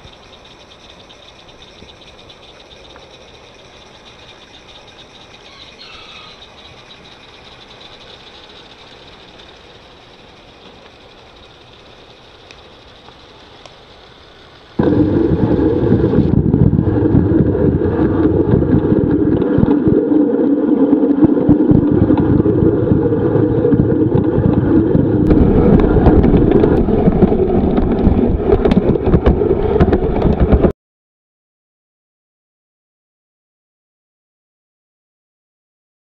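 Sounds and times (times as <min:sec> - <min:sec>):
faint outdoor ambience: 0:00.0 - 0:28.8
wind buffeting microphone: 0:14.8 - 0:30.7.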